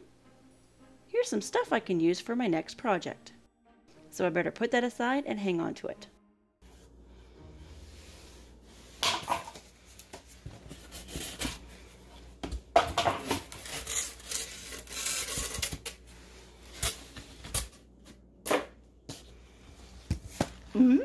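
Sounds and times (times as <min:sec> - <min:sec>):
cardboard and styrofoam scraping: 0:10.2 - 0:11.9, 0:13.2 - 0:17.6.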